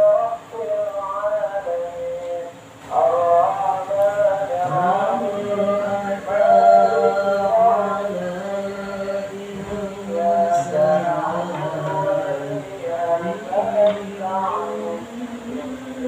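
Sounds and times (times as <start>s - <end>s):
men reciting melodically: 0.0s - 16.0s.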